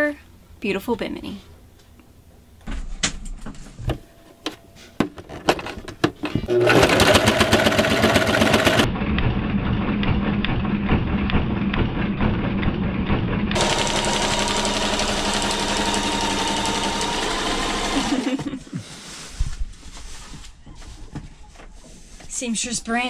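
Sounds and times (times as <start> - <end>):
sewing machine whine: 6.5 - 8.9, 13.6 - 18.4
sewing machine rattling: 6.6 - 8.9, 13.6 - 18.3.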